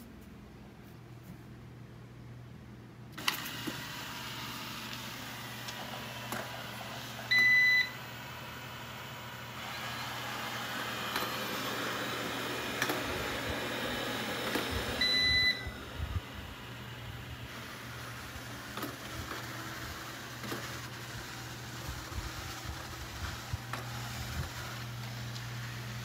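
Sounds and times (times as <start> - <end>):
robot vacuum whirring: 3.2 - 26.0
short beeps: 7.3 - 8.0, 15.0 - 15.7.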